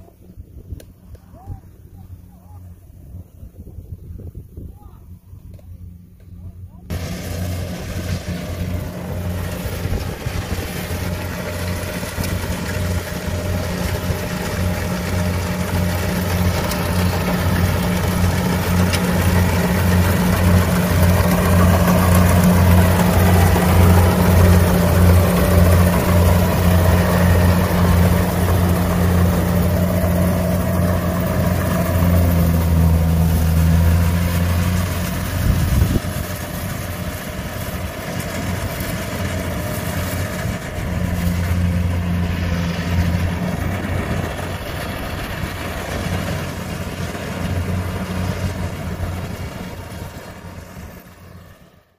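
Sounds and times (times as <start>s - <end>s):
combine harvester engine drone: 5.5s - 51.9s.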